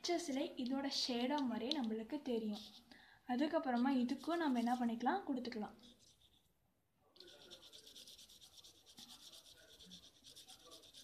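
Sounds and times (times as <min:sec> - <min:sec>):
pencil shading on paper: 0:02.6 - 0:02.8, 0:05.8 - 0:06.4, 0:07.2 - 0:11.0.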